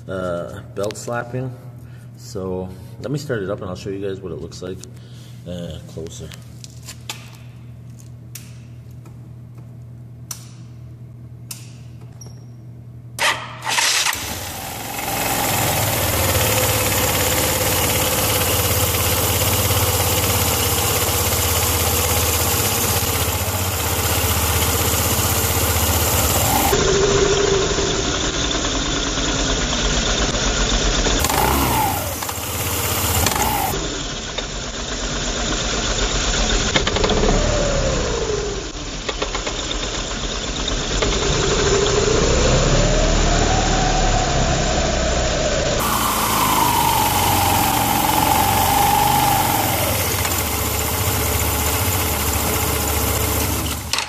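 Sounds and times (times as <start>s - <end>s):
scooter engine running and revving: 14.1s - 54.0s.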